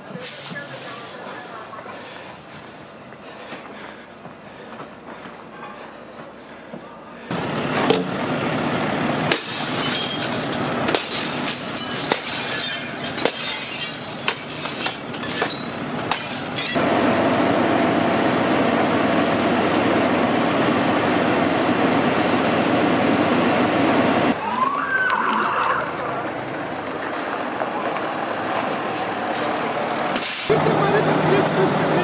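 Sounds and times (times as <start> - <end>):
pole smashing window glass: 9.3 - 16.8
steady mechanical drone: 16.8 - 24.4.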